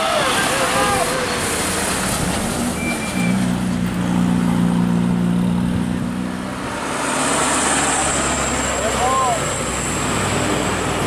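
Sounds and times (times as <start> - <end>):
bus diesel engine passing: 0.0 - 11.0
road noise: 0.0 - 11.0.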